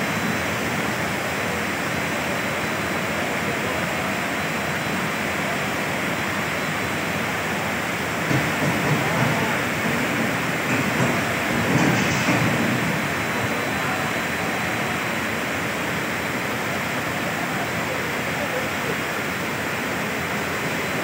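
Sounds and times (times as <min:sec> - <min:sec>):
floodwater rushing: 0:00.0 - 0:21.0.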